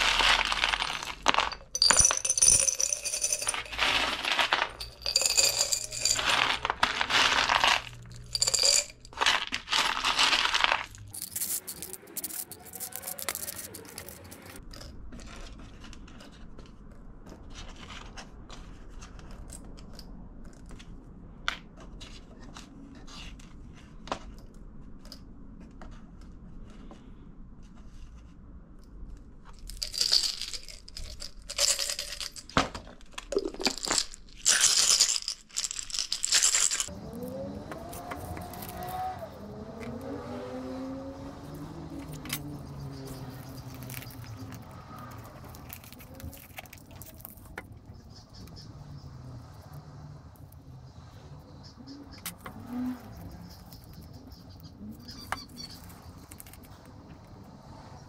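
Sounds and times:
metal screws clattering and clinking: 0:00.0 - 0:15.0, 0:29.6 - 0:36.9, 0:37.7 - 0:39.0, 0:41.4 - 0:48.0, 0:52.2 - 0:56.8.

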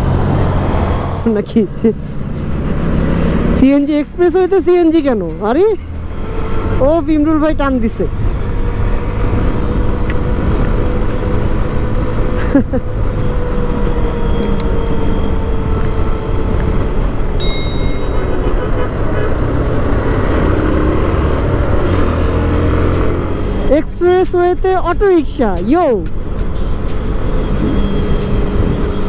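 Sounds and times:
wind and road noise: 0:00.0 - 0:29.0
vehicle horn toot: 0:17.9 - 0:19.7.

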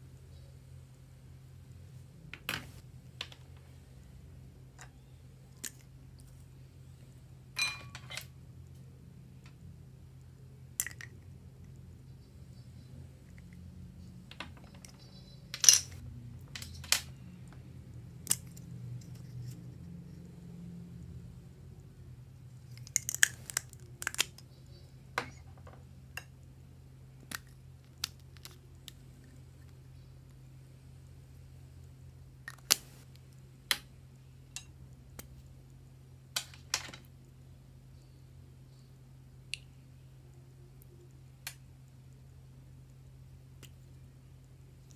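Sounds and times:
steady low hum: 0:00.0 - 0:44.9
clicks of small hard objects: 0:22.7 - 0:24.5.

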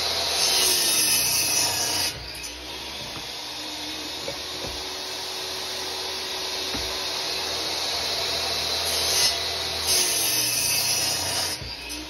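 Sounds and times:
miter saw cutting wood: 0:00.0 - 0:12.0.

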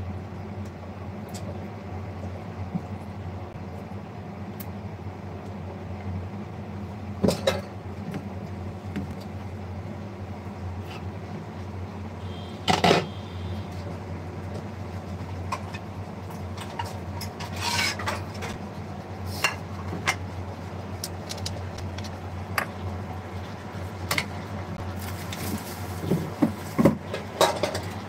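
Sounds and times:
steady low hum: 0:00.0 - 0:28.0
pots and pans clattering: 0:07.2 - 0:07.7, 0:16.6 - 0:18.6, 0:25.3 - 0:28.0.

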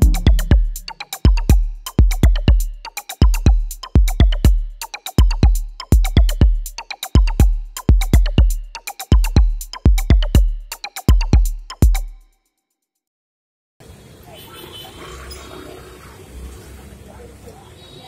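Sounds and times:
electronic drum machine beat: 0:00.0 - 0:12.2.

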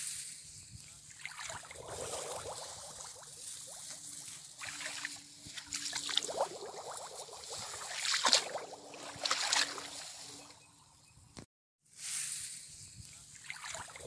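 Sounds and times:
shallow water sloshing and trickling: 0:00.9 - 0:11.0, 0:13.3 - 0:14.0.

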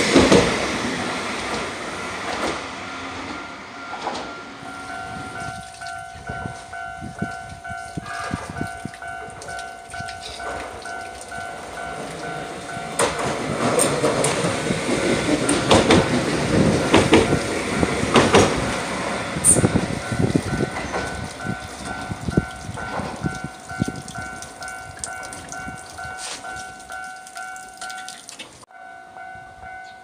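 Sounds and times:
tram wheels clacking over rail joints: 0:00.0 - 0:28.7
level crossing bell ringing: 0:03.4 - 0:13.4, 0:19.3 - 0:30.0.

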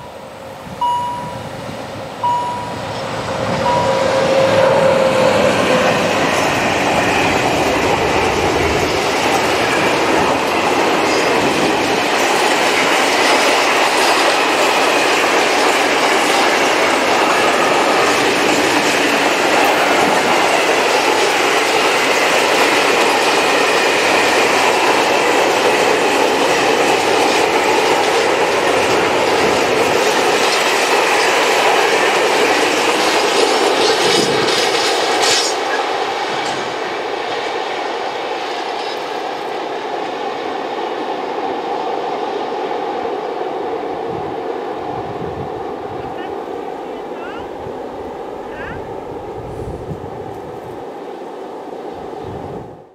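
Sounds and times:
train wheels rumbling on rails: 0:00.0 - 0:52.9
wheel squeal on rail: 0:02.2 - 0:07.3, 0:33.0 - 0:36.6, 0:38.7 - 0:39.2.

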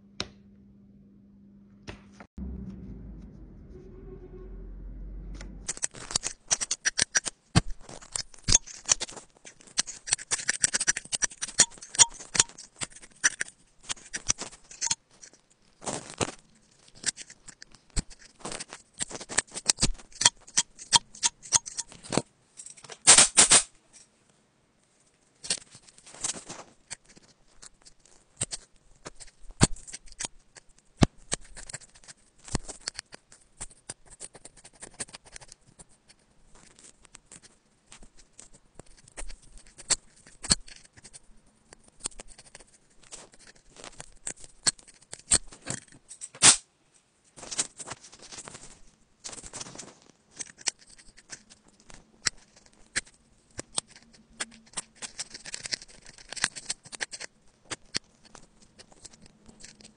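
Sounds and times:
low hum: 0:02.4 - 0:06.4
metal pick scraping charging port: 0:20.2 - 0:21.9.

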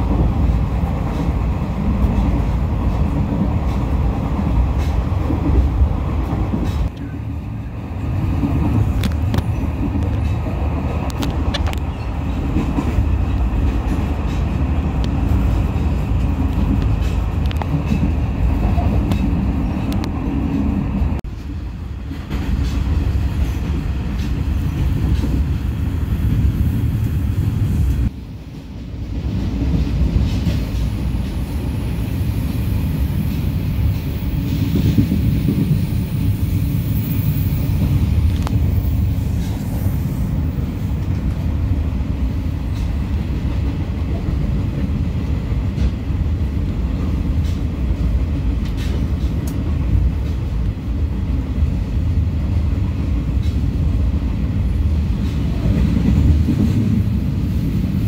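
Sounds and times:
train rumbling on rails: 0:00.0 - 0:58.0.

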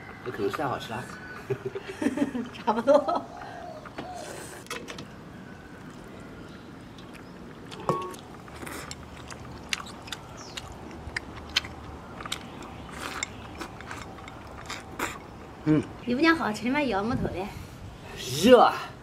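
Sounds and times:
slurping and chewing: 0:06.9 - 0:16.0.

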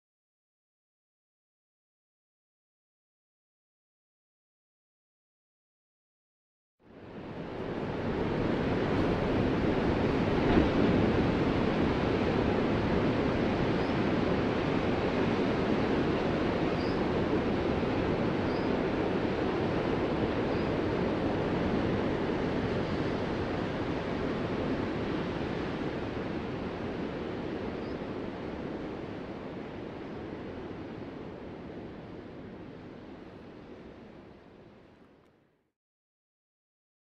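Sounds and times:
ocean surf breaking: 0:07.3 - 0:32.4.

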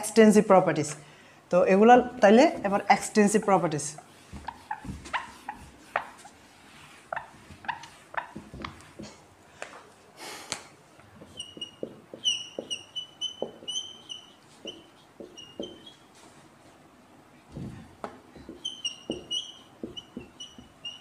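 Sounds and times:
marker squeaking on whiteboard: 0:02.5 - 0:09.2, 0:11.2 - 0:16.2, 0:18.4 - 0:21.0
whiteboard being wiped: 0:02.5 - 0:09.2.

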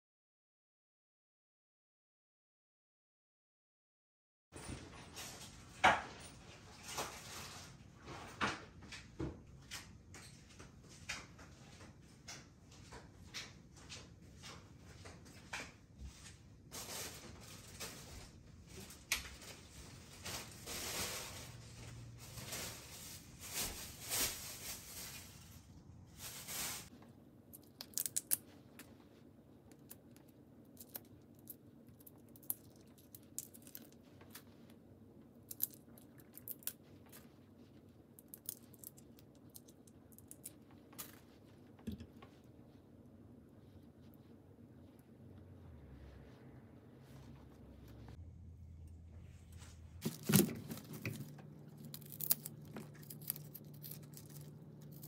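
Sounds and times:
rustling and scraping: 0:04.6 - 0:48.2, 0:49.1 - 0:55.0
shrimp shells cracking: 0:27.6 - 0:28.5, 0:35.5 - 0:36.8, 0:50.0 - 0:55.0.

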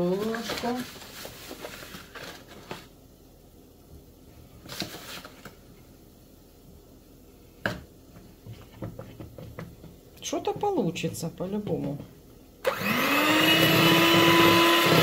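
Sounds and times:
plastic bag crinkling: 0:00.0 - 0:02.9.

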